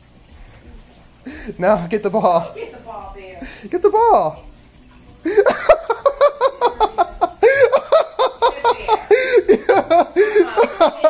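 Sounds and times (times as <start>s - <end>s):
person laughing hard: 5.3s - 11.0s.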